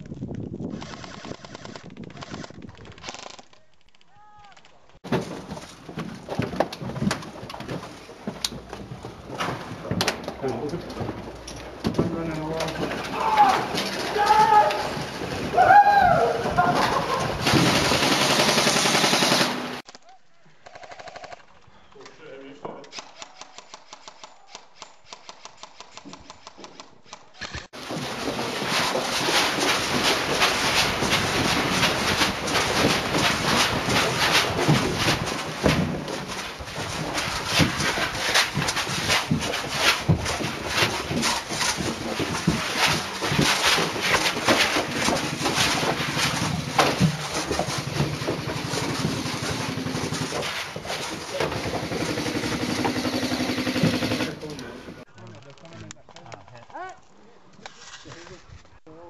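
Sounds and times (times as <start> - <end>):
footsteps running on rubble: 4.8 - 18.0, 27.7 - 54.2
airsoft guns firing: 17.0 - 19.9, 51.4 - 54.4.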